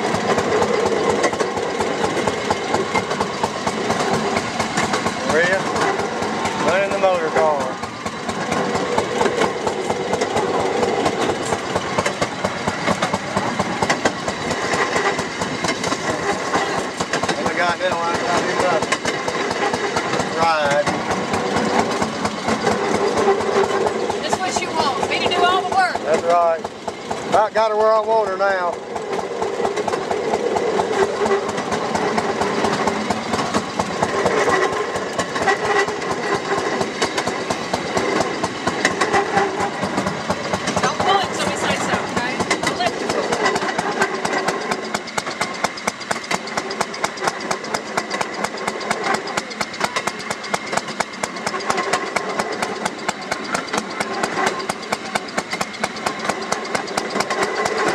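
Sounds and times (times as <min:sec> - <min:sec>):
rail car rattling on track: 0:00.0 - 0:57.9
small engine running: 0:00.0 - 0:57.9.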